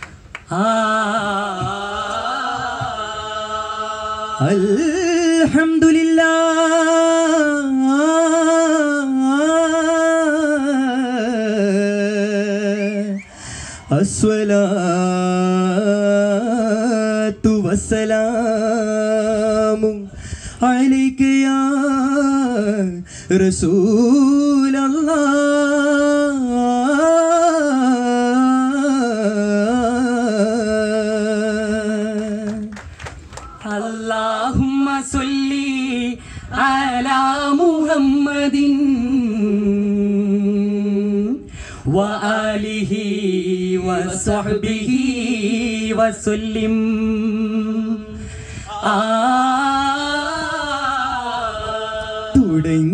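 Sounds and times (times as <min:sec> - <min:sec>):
men's group singing: 0:00.5 - 0:13.2, 0:33.5 - 0:38.8, 0:41.9 - 0:52.9.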